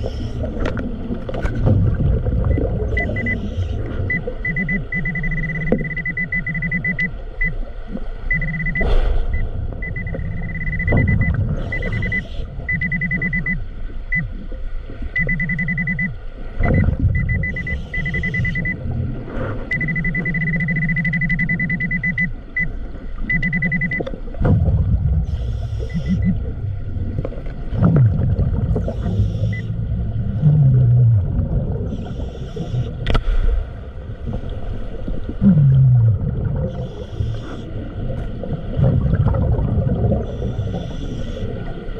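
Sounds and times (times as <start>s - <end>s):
underwater bubbling: 0.0s - 41.9s
muffled low rumble: 7.9s - 13.1s, 24.2s - 41.9s.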